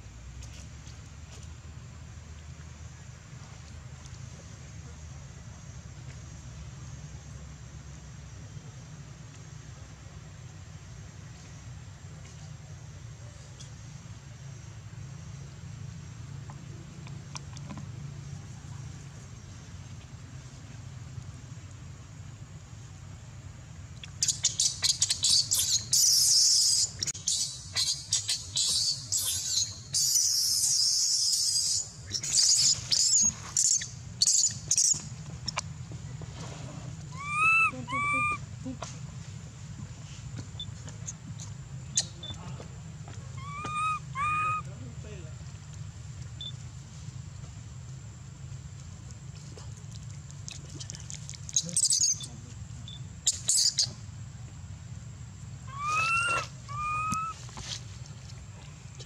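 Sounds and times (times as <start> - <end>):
baby monkey screaming: 24.2 - 35.0, 37.1 - 38.4, 43.3 - 44.7, 51.6 - 52.3, 53.3 - 53.9, 55.7 - 57.4
baby monkey whimpering coos: 37.1 - 38.4, 43.4 - 44.6, 55.7 - 57.4.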